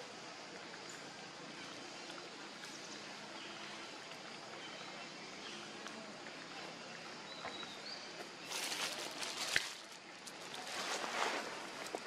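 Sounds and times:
rustling and crackling: 8.4s - 12.0s.

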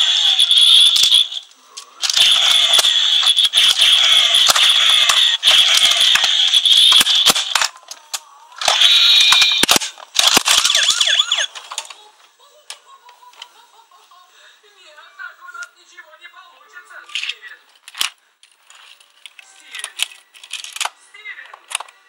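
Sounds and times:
toy car electronic sound effects: 0.0s - 8.0s, 8.6s - 11.7s.

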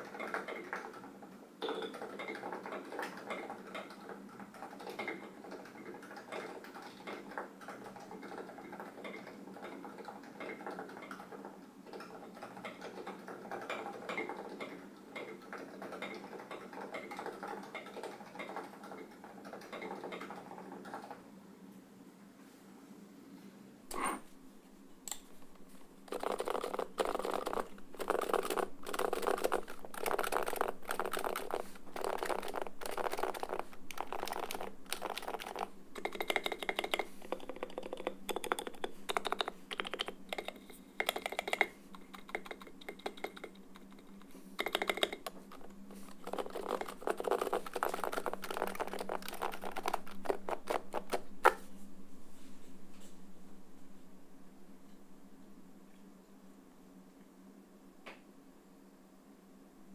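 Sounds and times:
keyboard typing: 26.1s - 51.6s.

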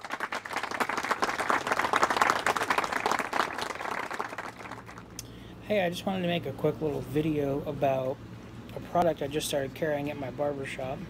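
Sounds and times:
crowd applauding: 0.0s - 5.1s.

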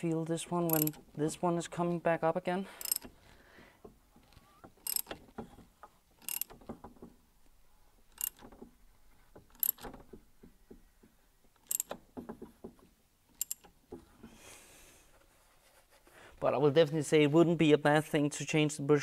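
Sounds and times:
ratchet wrench clicking: 0.7s - 1.0s, 2.8s - 3.1s, 4.8s - 5.2s, 6.2s - 6.6s, 8.1s - 8.4s, 9.6s - 9.9s, 11.6s - 12.0s, 13.4s - 13.7s.

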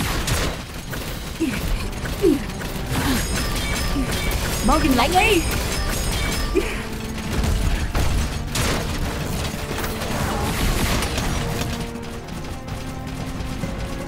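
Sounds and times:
action music: 0.0s - 14.0s
crashing impacts: 0.0s - 14.0s
robots clanking and whirring: 0.0s - 14.0s.

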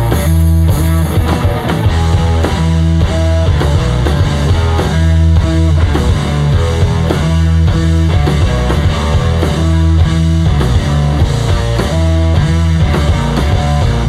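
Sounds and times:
electric guitar: 0.0s - 14.0s
heavy bass line: 0.0s - 14.0s
live rock band playing: 0.0s - 14.0s
steady drum beat: 0.0s - 14.0s.

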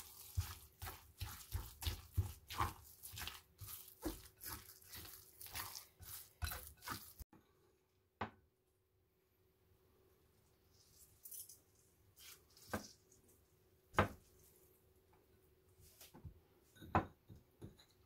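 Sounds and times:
wet squishing in a mortar: 0.0s - 7.3s.

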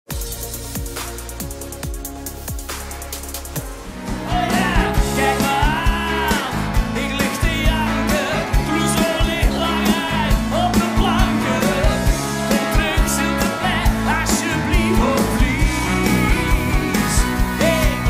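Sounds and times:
pop rock band playing: 0.1s - 18.0s
steady drum beat: 0.1s - 18.0s
man singing lead: 4.0s - 18.0s.

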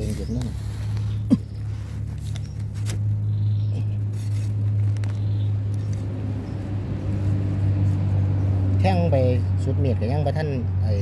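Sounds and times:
knife scraping dry soil: 0.0s - 8.4s
low motor hum: 0.0s - 11.0s.

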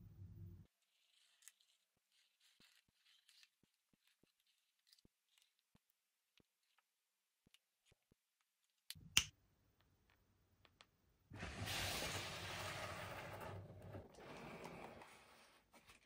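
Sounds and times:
toys and packaging rustling: 0.7s - 8.8s, 11.4s - 16.0s.

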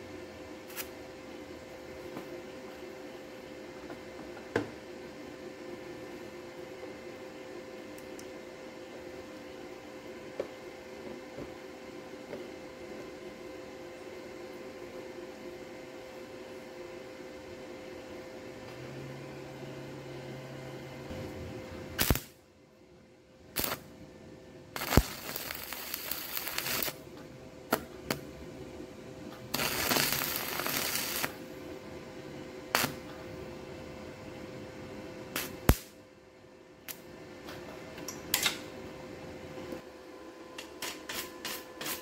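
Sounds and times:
welding arc crackling and hissing: 0.6s - 1.0s, 21.9s - 22.4s, 23.5s - 23.9s, 24.7s - 27.0s, 27.7s - 28.3s, 29.4s - 31.5s, 32.7s - 33.1s, 35.3s - 36.0s.

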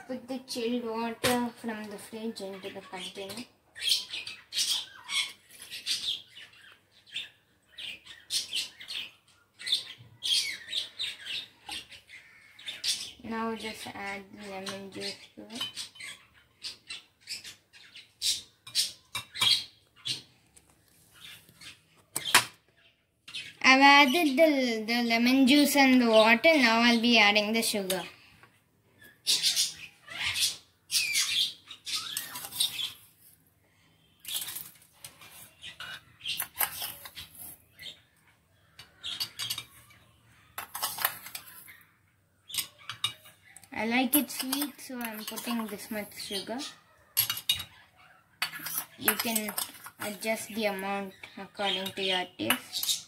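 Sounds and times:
metal spoon scraping a steel bowl: 34.2s - 37.6s, 40.6s - 41.8s, 44.2s - 46.5s, 47.2s - 47.8s, 48.4s - 50.2s.

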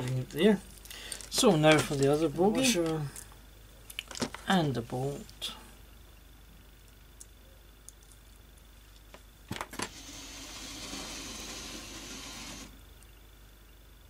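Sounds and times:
screwdriver scraping: 9.9s - 12.7s.

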